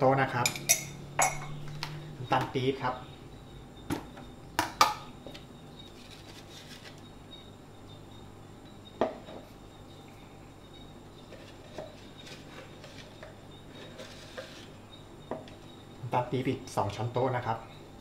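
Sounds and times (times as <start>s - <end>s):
metal spoon clinking on pan: 0.4s - 1.6s.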